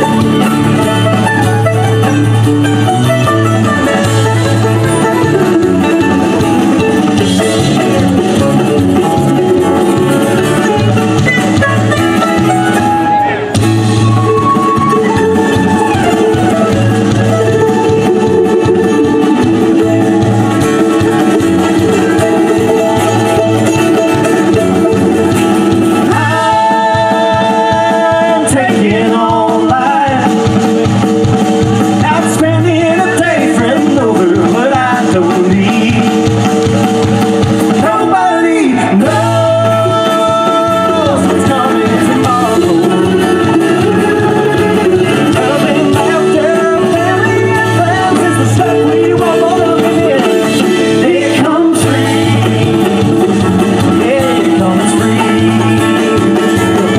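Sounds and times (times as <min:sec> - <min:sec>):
live band playing: 0:00.0 - 0:56.9
person singing long notes: 0:26.0 - 0:30.4, 0:37.8 - 0:56.9.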